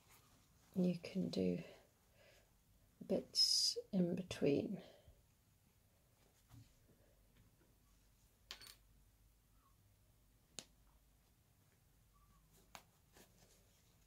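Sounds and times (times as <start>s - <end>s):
fabric handling noises: 0.0s - 1.4s.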